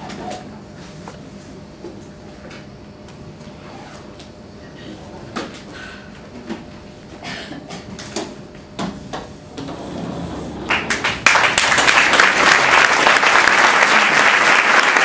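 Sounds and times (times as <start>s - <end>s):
audience applause: 10.6s - 15.0s.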